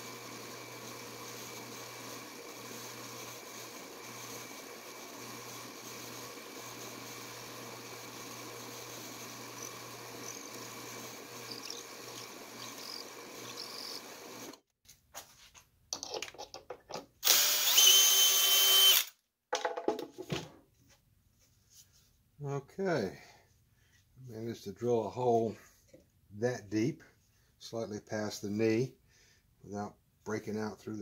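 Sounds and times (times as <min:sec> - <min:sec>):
cordless drill high-pitched whine: 0:00.0 - 0:14.6, 0:17.2 - 0:19.1
drill press humming: 0:00.0 - 0:14.6, 0:17.2 - 0:19.1.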